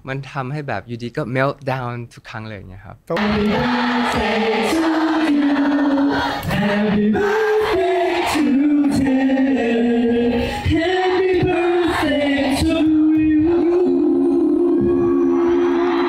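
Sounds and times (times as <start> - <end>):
crowd noise: 3.2 - 8.4, 14.9 - 16.0
backing track music: 3.2 - 9.3
group singing into microphones: 3.2 - 16.0.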